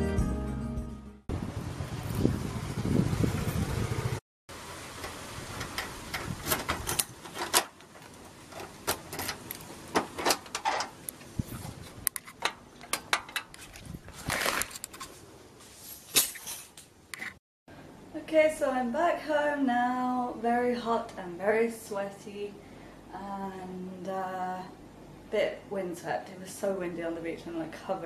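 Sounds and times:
door opening: 5.1 - 11.0.

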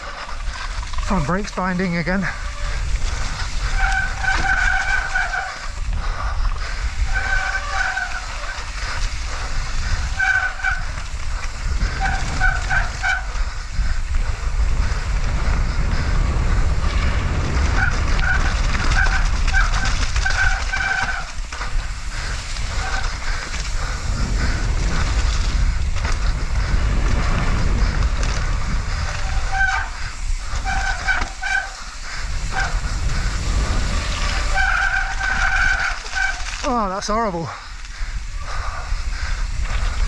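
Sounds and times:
bike brakes squealing: 0.0 - 37.2
low rumble of bike on trail: 0.0 - 40.0
person speaking: 1.0 - 2.4, 36.6 - 37.6.

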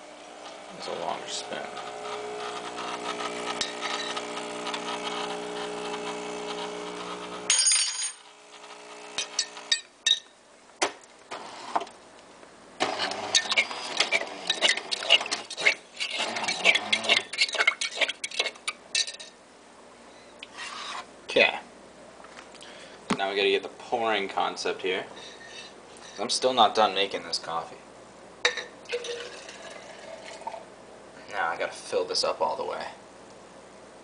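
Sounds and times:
coffee machine electric hum: 0.0 - 19.0, 28.4 - 32.0.

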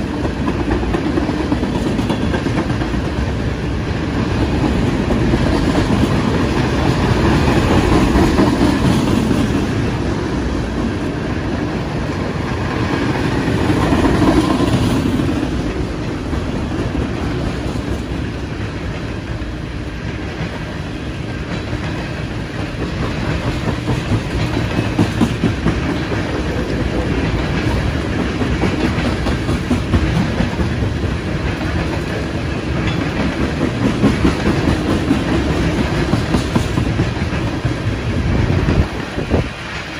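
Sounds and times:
freight train rumbling past: 0.0 - 39.9
train wheels clacking over rail joints: 0.0 - 39.9.

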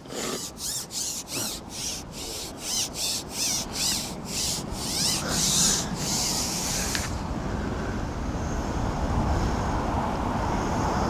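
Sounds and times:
fishing pole scraping on rest: 0.0 - 7.1.

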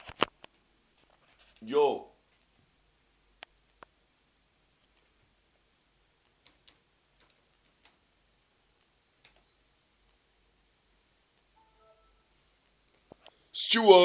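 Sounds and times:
faint clicks: 3.4 - 4.0, 8.8 - 10.2, 11.3 - 11.5.

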